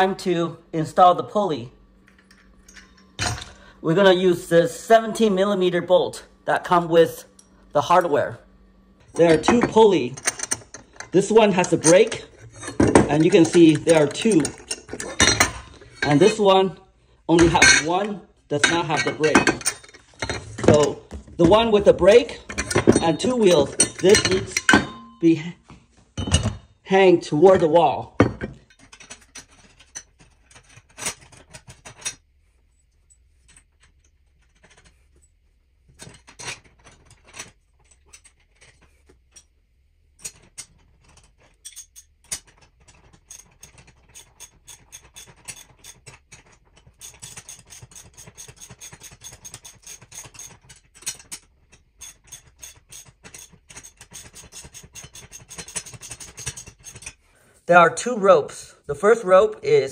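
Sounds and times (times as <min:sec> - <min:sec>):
ratchet wrench clicking: 0:43.3 - 0:46.1, 0:46.9 - 0:51.4, 0:52.0 - 0:57.2.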